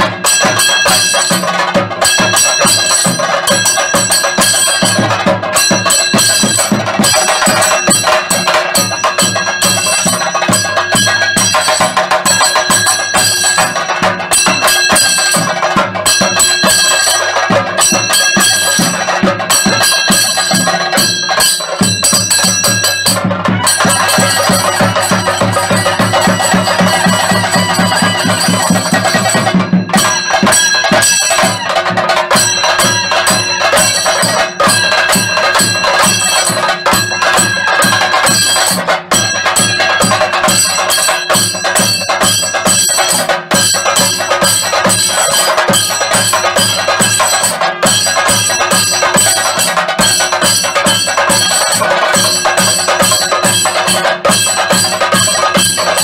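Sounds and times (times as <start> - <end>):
drums beaten fast: 0.0 - 56.0
metallic ringing: 0.2 - 56.0.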